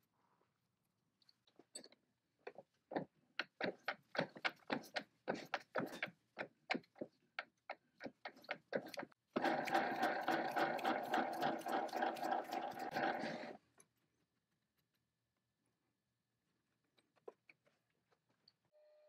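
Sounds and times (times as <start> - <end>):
lathe running with rapid ticking: 9.4 - 13.5.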